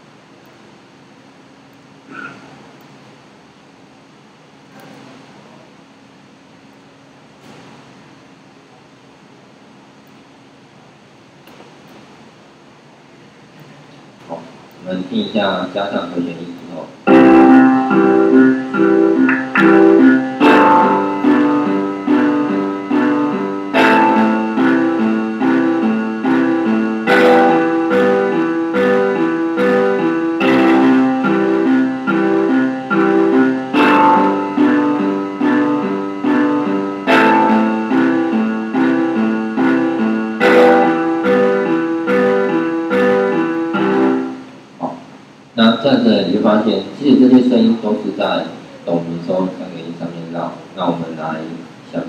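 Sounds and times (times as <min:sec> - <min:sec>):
sampled piano broken chords: 0:14.8 - 0:50.1.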